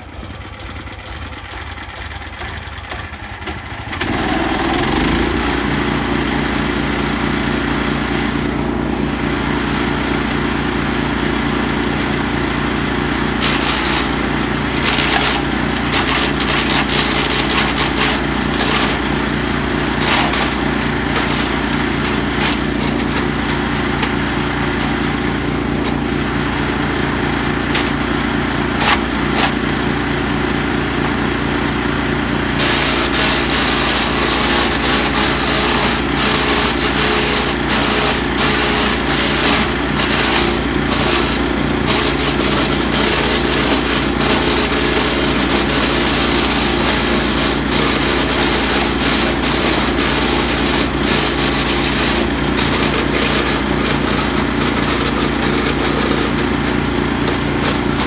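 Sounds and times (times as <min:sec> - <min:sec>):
wood chipper engine running: 0:00.0 - 0:58.0
crackling and clatter of hose cut: 0:02.4 - 0:05.5, 0:13.2 - 0:29.7, 0:32.5 - 0:58.0.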